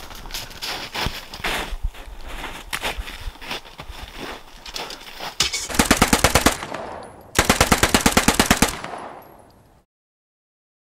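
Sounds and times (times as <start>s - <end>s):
machine-gun fire: 5.5s - 9.6s.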